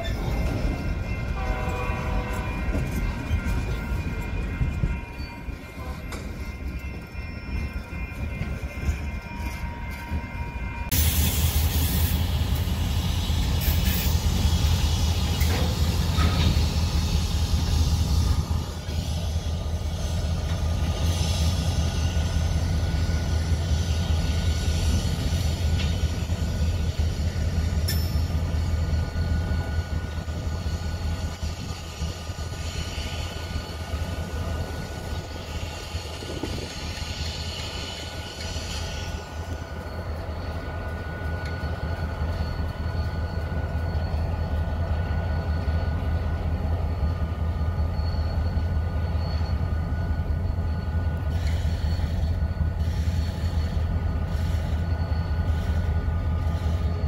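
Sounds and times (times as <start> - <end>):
diesel locomotive engine rumble: 0.0 - 57.0
faint steady squealing: 12.5 - 57.0.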